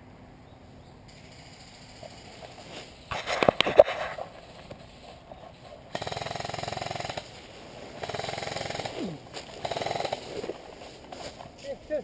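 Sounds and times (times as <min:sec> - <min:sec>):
airsoft rifle firing bursts: 0:05.9 - 0:10.5.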